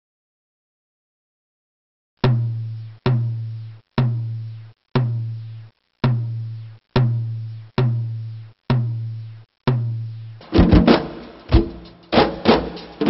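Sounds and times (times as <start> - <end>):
deep drum hits: 9.7 - 13.0.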